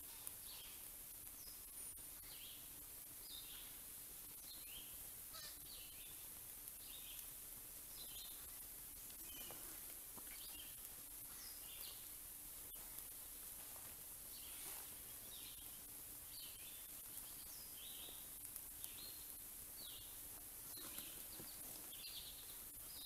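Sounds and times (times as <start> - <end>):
songbird chirps: 0.0 - 23.0
steady background hiss: 0.0 - 23.0.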